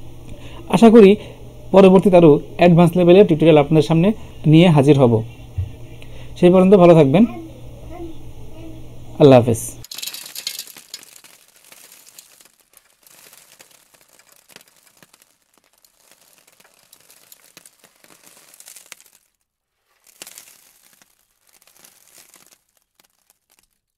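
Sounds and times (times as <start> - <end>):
crackling crinkling noise: 9.8 - 23.9.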